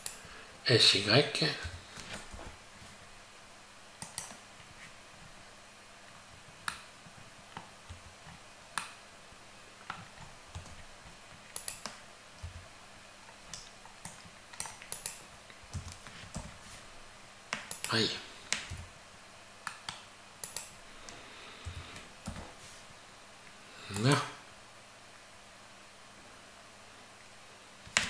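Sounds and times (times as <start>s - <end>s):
computer keyboard clicks: 4.0s - 4.4s, 11.5s - 12.0s, 13.5s - 16.5s, 17.5s - 17.9s, 19.7s - 20.7s
mouse clicks: 4.0s - 4.4s, 11.5s - 12.6s, 13.4s - 16.5s, 19.6s - 22.4s.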